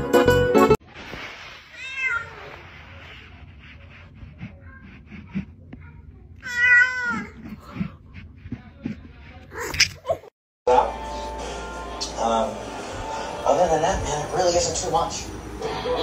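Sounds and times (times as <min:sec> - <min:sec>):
cat meowing: 0:01.7 - 0:02.6, 0:06.4 - 0:07.5.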